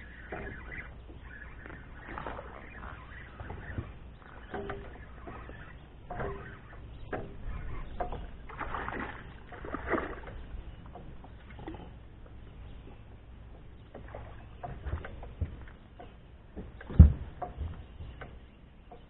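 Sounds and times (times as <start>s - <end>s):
water sloshing around kayak: 0.0s - 19.0s.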